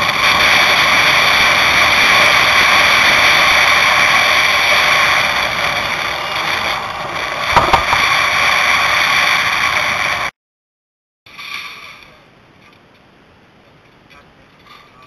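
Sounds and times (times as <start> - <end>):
knocks: 7.6 - 8.0.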